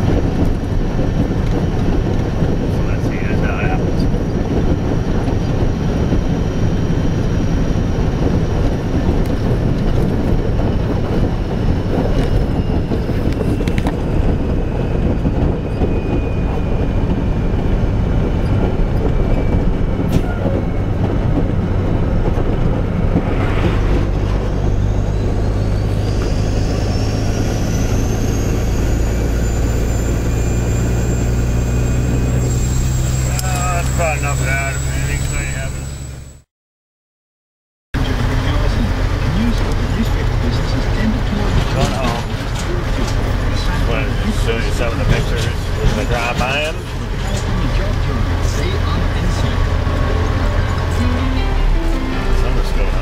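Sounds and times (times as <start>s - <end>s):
road noise: 0.0s - 36.4s, 38.0s - 53.0s
truck diesel engine running: 0.0s - 36.4s, 38.0s - 53.0s
thin rising whine: 5.4s - 36.4s.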